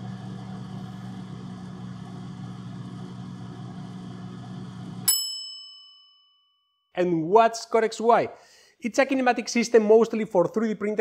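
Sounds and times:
machine hum: 0.0s - 5.1s
ringing ding: 5.0s - 6.8s.

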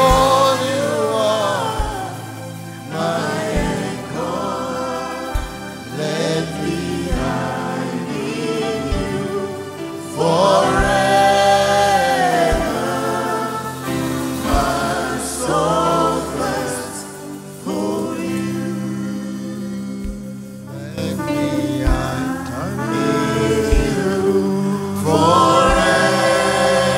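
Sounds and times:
man singing gospel song: 0.0s - 26.9s
women backing singers: 0.0s - 26.9s
soft low beat: 21.3s - 24.6s.

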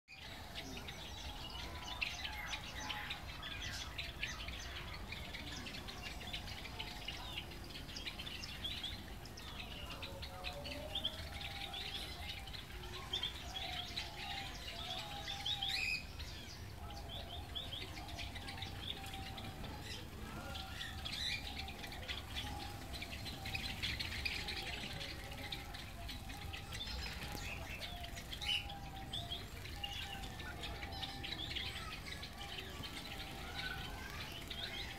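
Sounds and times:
sparrows chirping: 0.1s - 34.9s.

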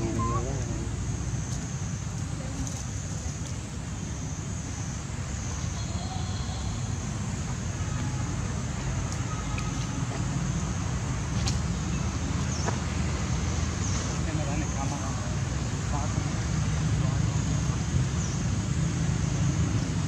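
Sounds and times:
steady high hiss: 0.0s - 2.4s.

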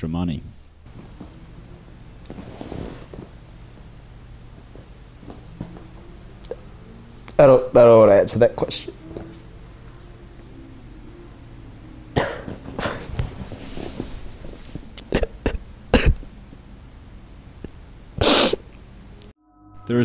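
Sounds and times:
person coughing: 12.2s - 13.1s, 15.1s - 16.3s.

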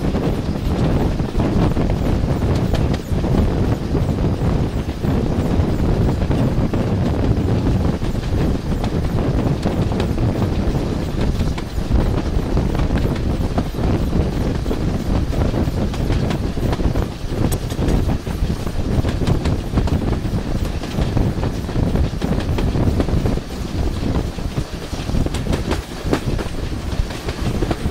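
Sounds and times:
steam train rumble: 0.0s - 27.9s
wheels clicking over rail joints: 6.2s - 27.9s.

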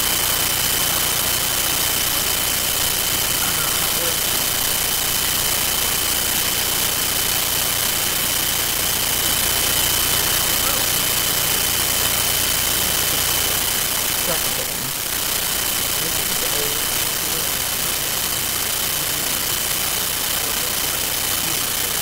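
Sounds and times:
loud steady hiss: 0.0s - 22.0s
thin high whine: 0.0s - 22.0s
faint speech: 2.0s - 4.9s, 10.4s - 11.1s, 14.1s - 15.1s, 15.9s - 22.0s.

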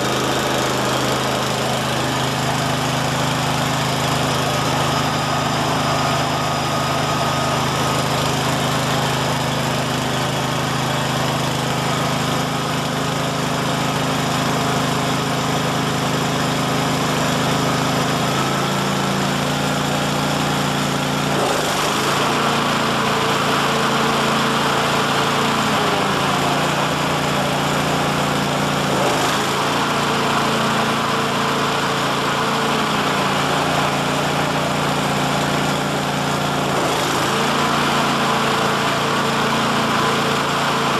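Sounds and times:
lawn mower engine running: 0.0s - 40.9s.

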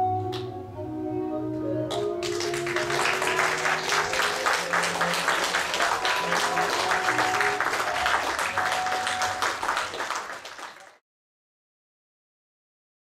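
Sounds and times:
baroque dance music: 0.0s - 10.8s
audience applauding: 1.9s - 11.0s.

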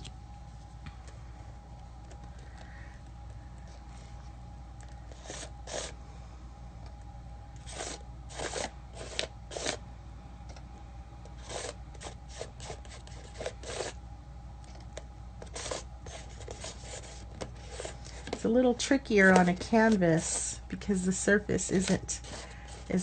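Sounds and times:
palette knife scraping: 5.1s - 6.0s, 7.6s - 9.8s, 11.3s - 14.0s, 15.4s - 18.4s, 21.7s - 23.0s.

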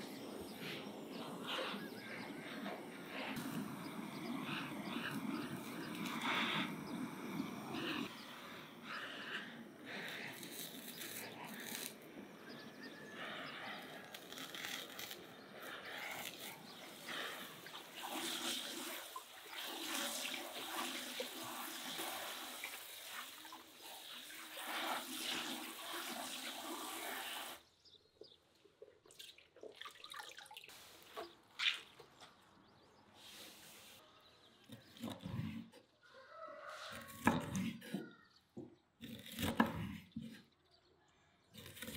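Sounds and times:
herbs rustling: 14.0s - 17.3s.

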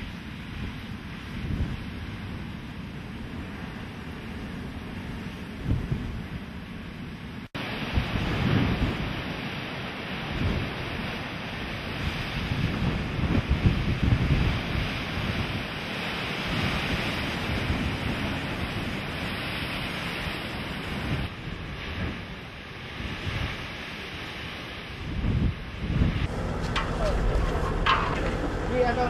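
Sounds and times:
wind gusts on microphone: 0.0s - 29.0s
surf breaking on rocky shore: 23.0s - 29.0s.

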